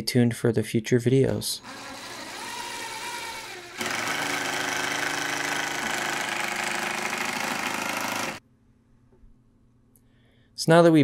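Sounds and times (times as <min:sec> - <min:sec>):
impact driver hammering screw: 0:01.6 - 0:08.4.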